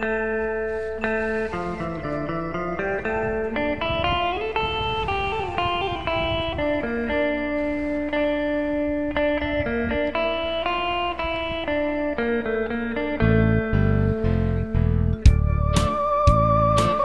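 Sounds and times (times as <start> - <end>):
instrumental trot music with guitar: 0.0 - 17.0.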